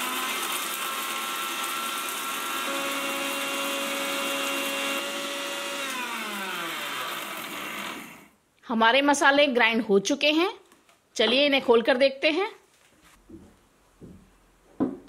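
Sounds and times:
mixer grinder motor whine: 0:00.0 - 0:08.4.

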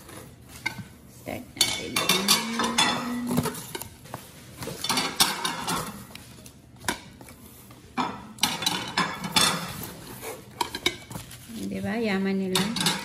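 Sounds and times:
ceramic plates clinking: 0:01.6 - 0:03.9, 0:08.0 - 0:10.0, 0:12.5 - 0:13.0.

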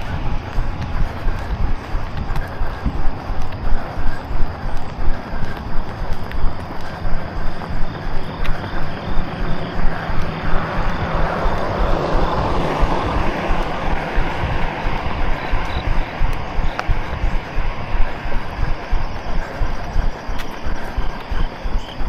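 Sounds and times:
vehicle passing: 0:00.0 - 0:04.3, 0:07.2 - 0:19.4.

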